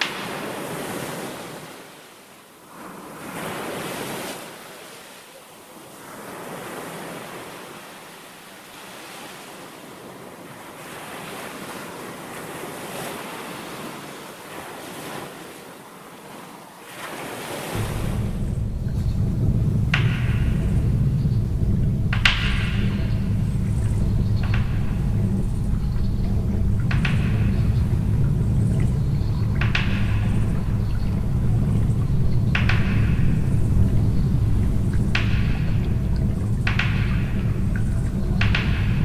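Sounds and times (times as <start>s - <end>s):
sea waves washing ashore: 0.0s - 39.0s
wind on microphone: 17.7s - 39.0s
deep low rumble: 17.8s - 39.0s.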